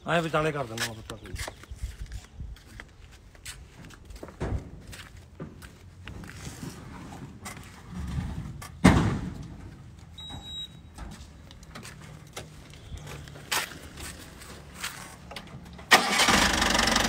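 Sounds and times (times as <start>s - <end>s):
heavy bang: 8.8s - 9.6s
short high beep: 10.2s - 10.9s.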